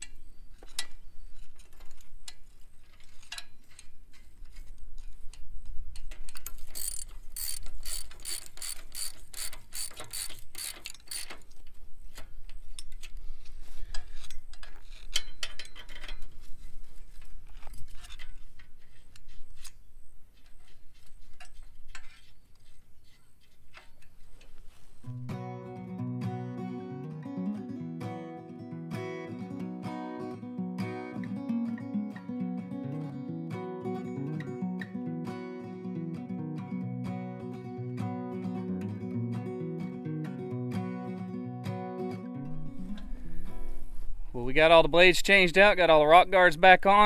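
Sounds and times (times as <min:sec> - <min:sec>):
metal parts clinking: 0:06.0 - 0:12.2, 0:13.9 - 0:16.4
ratchet wrench clicking: 0:06.3 - 0:11.4
acoustic guitar music: 0:25.0 - 0:47.0.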